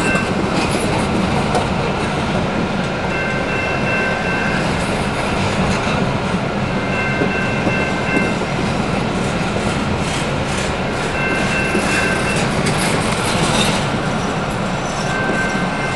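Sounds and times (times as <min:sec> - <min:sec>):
train wheels rumbling on rail: 0:00.0 - 0:15.9
wheels clicking over rail joints: 0:09.6 - 0:15.9
high wheel squeals: 0:11.1 - 0:15.9.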